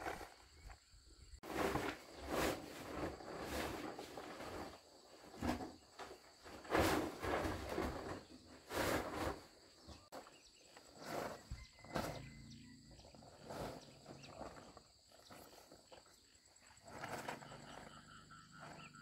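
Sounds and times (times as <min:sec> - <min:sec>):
plastic tarpaulin rustling: 0:01.4 - 0:09.6.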